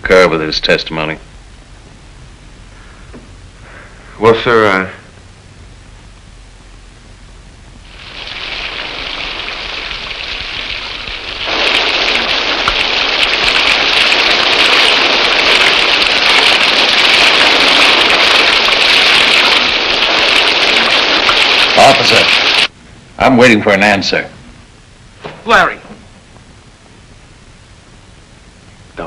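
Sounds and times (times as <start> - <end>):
heavy rain falling: 7.8 - 22.7.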